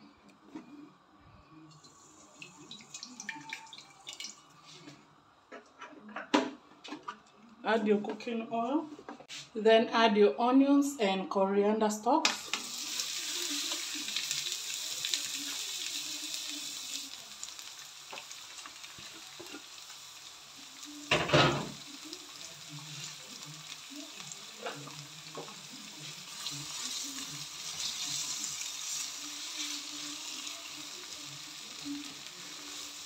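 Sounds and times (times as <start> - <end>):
onions sizzling in hot oil: 12.2 - 33.0.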